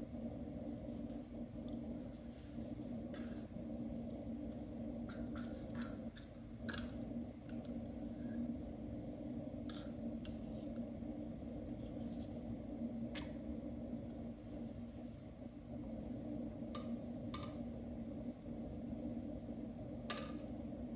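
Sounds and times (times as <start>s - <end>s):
aquarium pumps humming: 0.0s - 20.9s.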